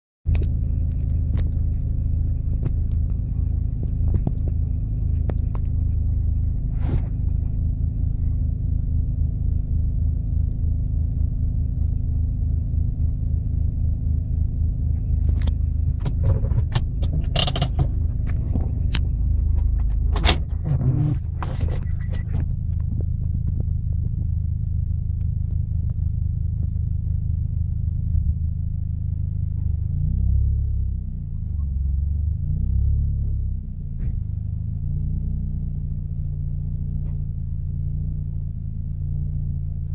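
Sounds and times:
rattles and clicks from vehicle body: 0:00.3 - 0:08.4, 0:14.7 - 0:28.5, 0:33.2 - 0:34.5, 0:36.9 - 0:37.4
engine running low: 0:00.3 - 0:39.9
sharp knocks and creaks: 0:15.3 - 0:23.1.

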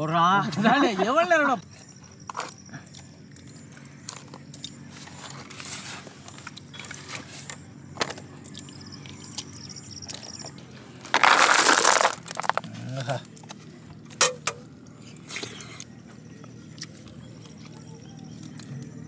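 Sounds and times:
stiff leaves crackling: 0:10.8 - 0:13.4
snail shells rattling onto leaf: 0:11.0 - 0:12.7.

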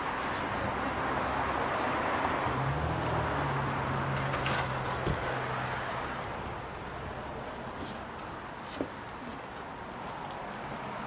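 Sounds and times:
car passing: 0:00.7 - 0:06.7.

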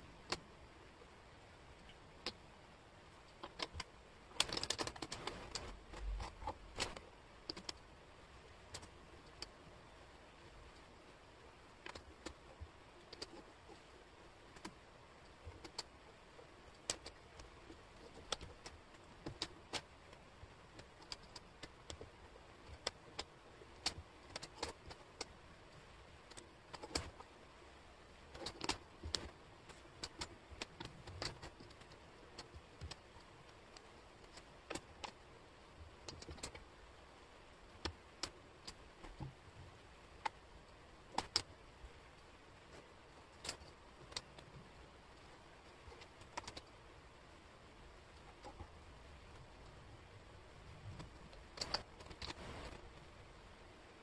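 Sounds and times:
faint steady hiss: 0:00.0 - 0:54.0
wooden puzzle pieces clicking: 0:03.3 - 0:07.8, 0:11.8 - 0:12.4, 0:15.5 - 0:15.9, 0:16.7 - 0:25.4, 0:26.2 - 0:27.3, 0:28.2 - 0:35.2, 0:36.0 - 0:36.7, 0:41.1 - 0:41.5, 0:43.3 - 0:44.6, 0:45.6 - 0:46.8, 0:50.9 - 0:52.4.

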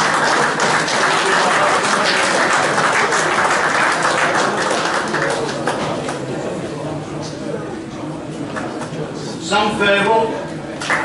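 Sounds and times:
group applauding: 0:00.0 - 0:06.4, 0:10.8 - 0:11.0.

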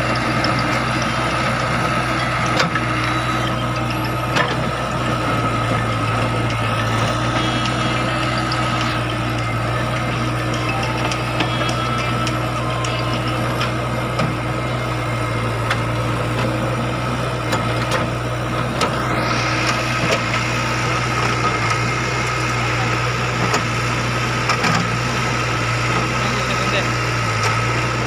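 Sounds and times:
diesel engine running under load: 0:00.0 - 0:28.0
rising mechanical whine: 0:01.1 - 0:24.1.

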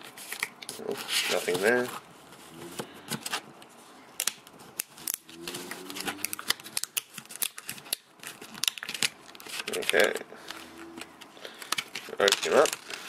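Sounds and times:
plastic crackling and snapping: 0:02.7 - 0:13.0.

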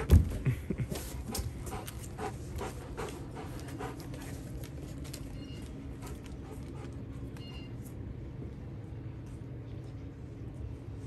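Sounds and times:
dog panting: 0:01.0 - 0:04.8, 0:05.9 - 0:07.7.

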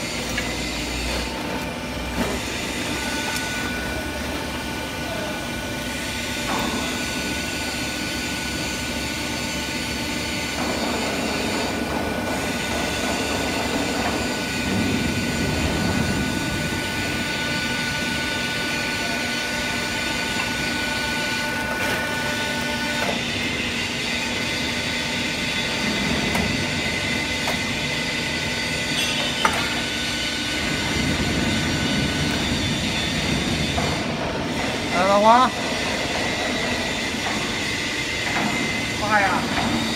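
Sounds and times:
machine humming with high whine: 0:00.0 - 0:39.9.

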